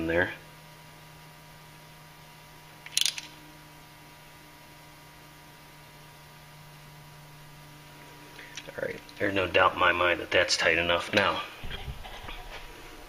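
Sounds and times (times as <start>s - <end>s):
steady low hum: 0.0s - 13.0s
ratchet clicking: 2.9s - 3.3s.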